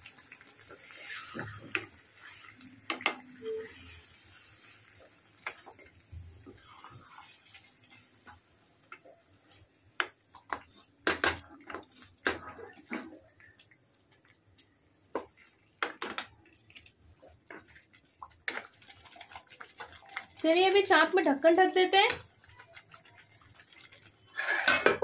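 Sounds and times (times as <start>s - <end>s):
chicken frying in oil: 0.0s - 25.0s
wooden spatula scraping metal pot: 24.2s - 25.0s.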